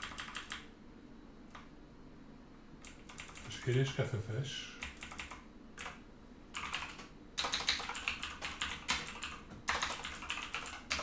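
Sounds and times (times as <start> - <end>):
keyboard typing clicks: 0.0 - 0.7, 2.8 - 3.9, 4.8 - 6.0, 6.6 - 11.0.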